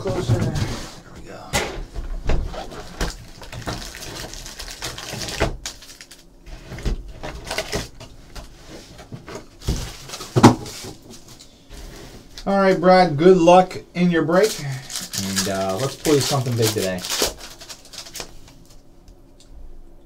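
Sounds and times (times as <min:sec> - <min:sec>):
foil packs rustling and knocking: 0:02.4 - 0:11.3, 0:14.4 - 0:18.8
plastic wrap crinkling: 0:02.6 - 0:08.5, 0:14.3 - 0:18.8.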